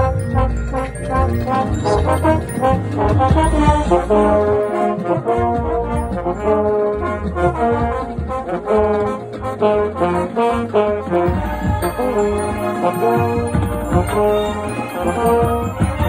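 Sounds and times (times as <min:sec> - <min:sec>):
trombones playing a melody: 0:00.0 - 0:16.0.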